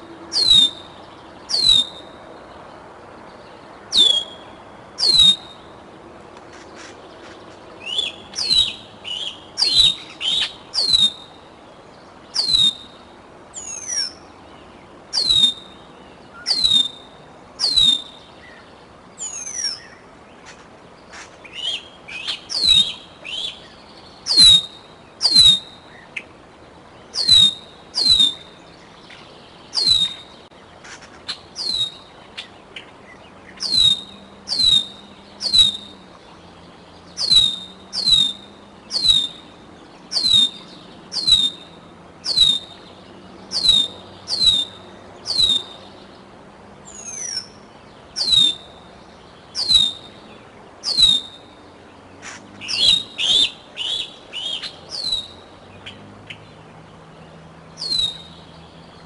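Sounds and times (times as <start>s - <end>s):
eagle whistled calls: 0.3s - 2.2s, 3.9s - 5.7s, 7.8s - 11.4s, 12.3s - 13.0s, 13.6s - 14.2s, 15.1s - 15.8s, 16.4s - 18.6s, 19.2s - 20.0s, 21.5s - 26.2s, 27.1s - 28.6s, 29.7s - 30.4s, 31.3s - 32.5s, 33.6s - 36.0s, 37.2s - 39.5s, 40.1s - 42.9s, 43.5s - 45.9s, 46.9s - 47.6s, 48.2s - 48.8s, 49.5s - 50.2s, 50.8s - 51.5s, 52.2s - 56.4s, 57.8s - 58.4s.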